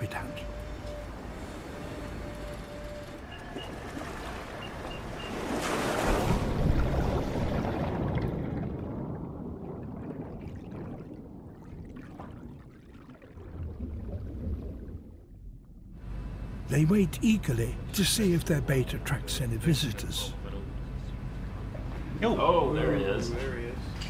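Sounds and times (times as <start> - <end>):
sea waves washing: 0.0 - 15.1
loud splash: 5.3 - 15.0
faint underwater bubbling: 6.2 - 15.9.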